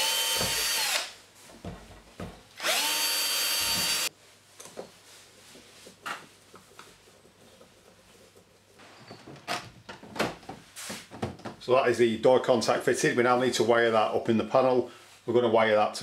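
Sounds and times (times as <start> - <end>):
power drill whining: 0.0 - 1.1, 2.6 - 4.1.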